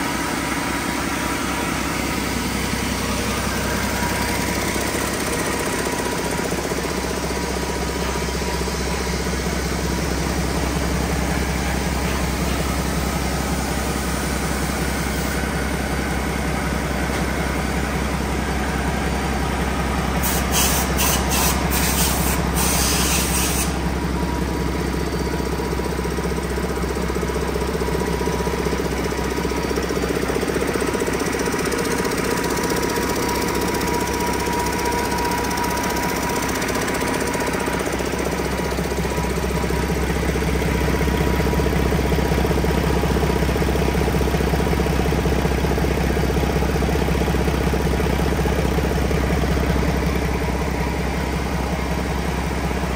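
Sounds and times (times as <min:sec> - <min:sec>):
diesel engine idling: 0:00.0 - 0:52.9
short air hisses: 0:20.2 - 0:23.8.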